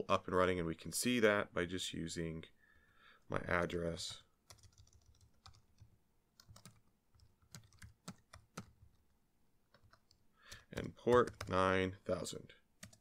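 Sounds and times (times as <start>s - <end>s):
computer keyboard typing: 4.0s - 9.1s, 9.7s - 11.6s, 12.8s - 13.0s.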